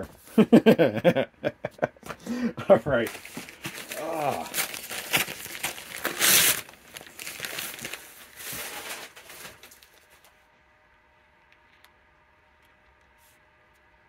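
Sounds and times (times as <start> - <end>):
plastic sleeves crinkling: 3.0 - 10.4.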